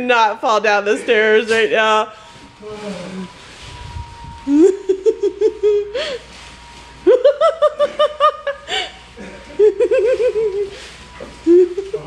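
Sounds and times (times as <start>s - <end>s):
person laughing hard: 4.5s - 6.2s, 7.1s - 10.8s.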